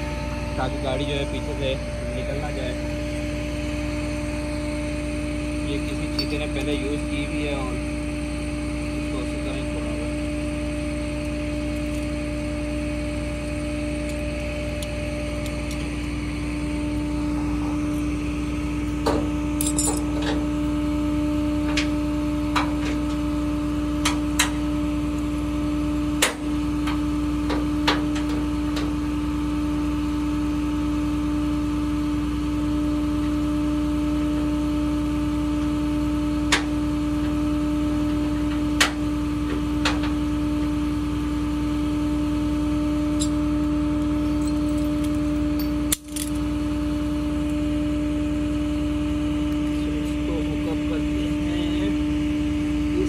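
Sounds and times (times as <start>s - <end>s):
metal chains clinking: 19.6s - 20.1s.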